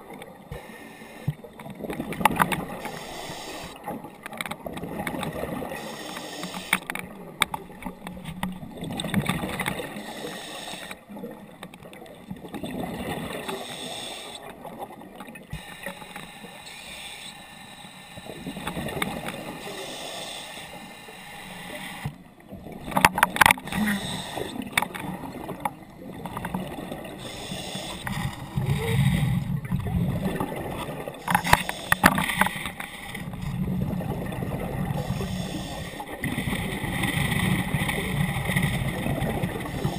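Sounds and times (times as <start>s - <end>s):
diver exhaling bubbles: 23.6s - 32.1s.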